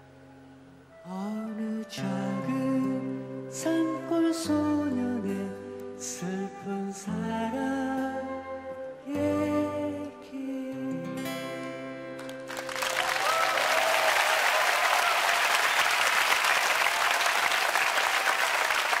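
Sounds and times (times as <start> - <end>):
audience applause: 12.3 - 19.0.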